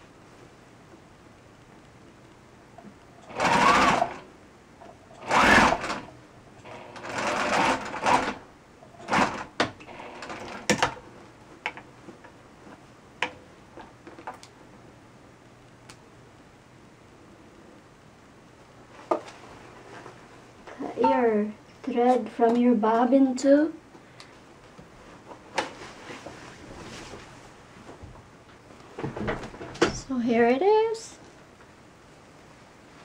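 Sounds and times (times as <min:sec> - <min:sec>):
sewing machine stitching: 0:03.2 - 0:04.2, 0:05.2 - 0:08.4, 0:09.0 - 0:11.0.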